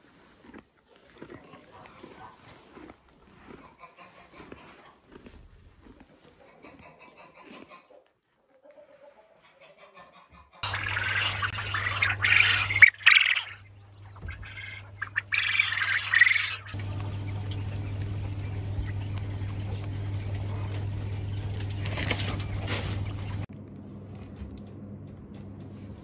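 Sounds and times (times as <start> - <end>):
quail chirping: 9.6 - 23.4
quail flapping wings in cages: 10.6 - 23.5
steady low hum: 10.6 - 26.0.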